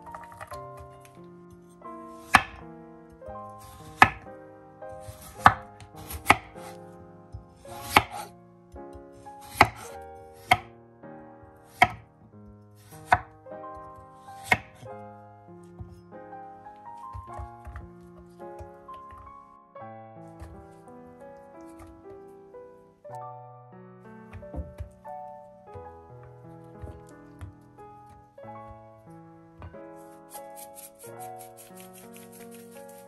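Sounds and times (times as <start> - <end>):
soft background music: 0.0 - 33.0
knife striking wooden cutting board: 2.2 - 2.7, 3.6 - 4.3, 5.0 - 6.8, 7.5 - 8.3, 9.4 - 10.7, 11.7 - 12.1, 12.8 - 14.9.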